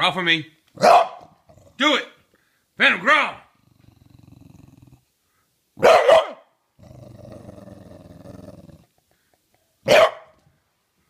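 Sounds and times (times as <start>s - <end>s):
dog barking: 0.8s - 1.4s, 5.8s - 6.5s, 9.8s - 10.4s
dog growling: 1.4s - 1.8s, 3.5s - 5.1s, 6.8s - 9.0s.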